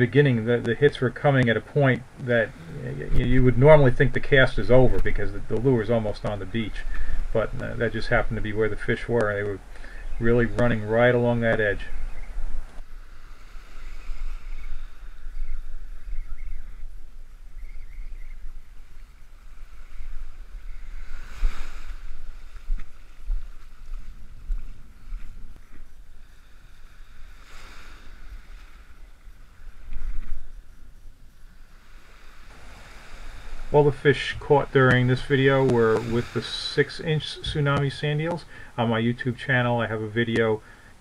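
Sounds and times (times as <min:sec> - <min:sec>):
wind buffeting microphone: 0:00.0 - 0:30.7
small ocean waves breaking: 0:00.2 - 0:39.8.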